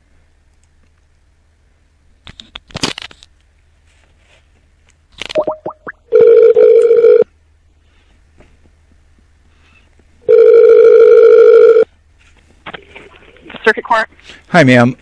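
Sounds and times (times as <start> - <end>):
warbling phone ringback tone: 5.4 - 7.3, 10.2 - 11.9.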